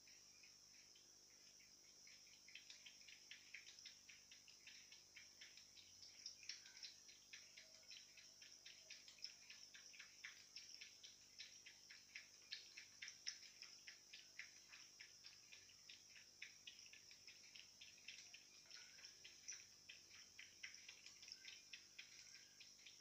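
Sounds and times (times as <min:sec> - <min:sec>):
cat lapping water: 0:06.9 - 0:23.0.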